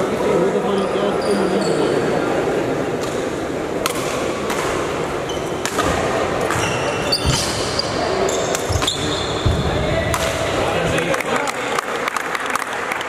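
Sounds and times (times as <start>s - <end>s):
racket striking shuttlecock: 5.6s - 6.6s.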